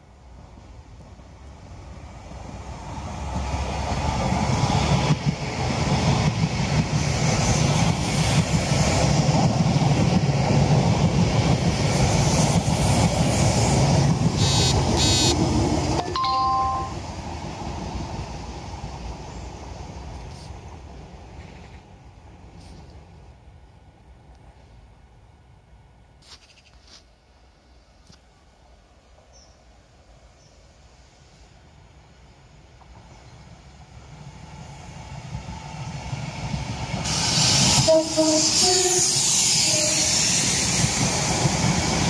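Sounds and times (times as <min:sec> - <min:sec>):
train passing: 0:00.0 - 0:26.2, 0:27.2 - 0:42.0
two-note tone: 0:16.0 - 0:17.0.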